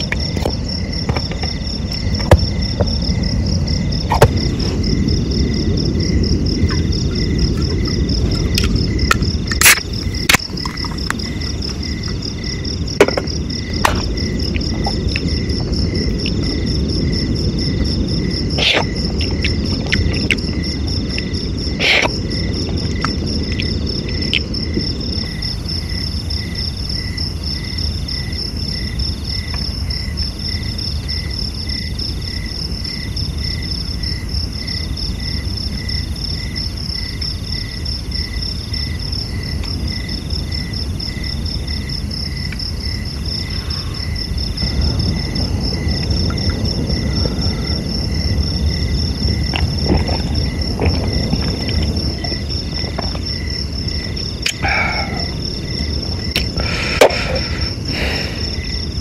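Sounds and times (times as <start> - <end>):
insect high trill: 0.0 - 59.0
insect pulsed chirp: 0.0 - 59.0
intermittent insect call: 0.0 - 59.0
sharp knocks: 2.2 - 2.9.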